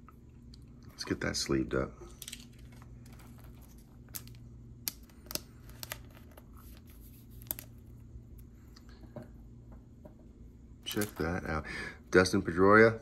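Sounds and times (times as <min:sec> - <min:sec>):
low steady hum: 0:00.0 - 0:13.0
cards and plastic sleeve handled: 0:02.2 - 0:08.0.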